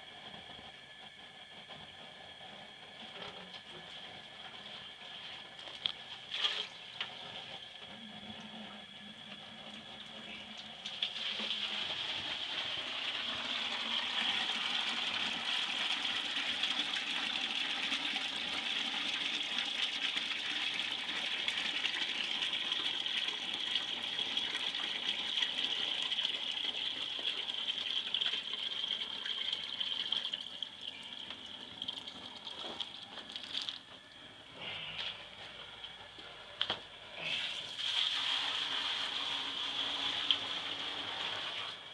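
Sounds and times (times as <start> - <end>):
water pouring into plastic bucket: 6.2 - 7.1, 10.8 - 33.9, 37.3 - 41.8.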